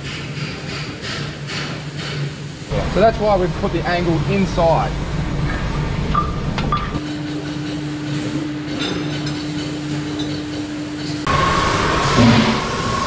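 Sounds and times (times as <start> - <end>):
workshop machinery hum: 0.0 - 13.0
steady low drone: 2.7 - 7.0
machine running with high tone: 10.9 - 13.0.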